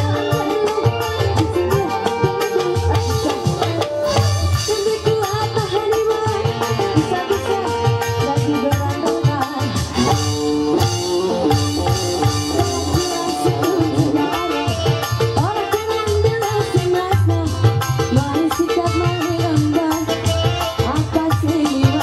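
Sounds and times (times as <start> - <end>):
hand drums steady beat: 0.0 - 22.0
stepping melody line: 0.0 - 22.0.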